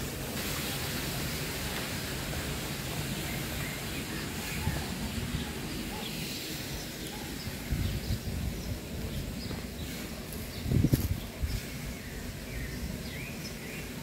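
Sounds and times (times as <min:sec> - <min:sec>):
faint birds chirping: 0:02.8 - 0:14.0
wind on microphone: 0:07.4 - 0:13.1.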